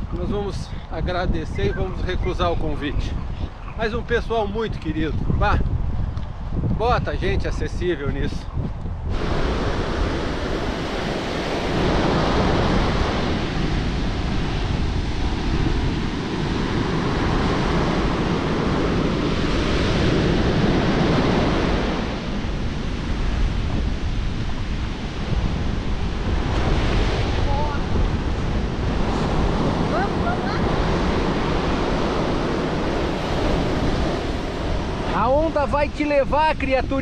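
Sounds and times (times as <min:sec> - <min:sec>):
wind on microphone: 0:00.0 - 0:37.0
sea surf washing onto beach: 0:09.1 - 0:37.0.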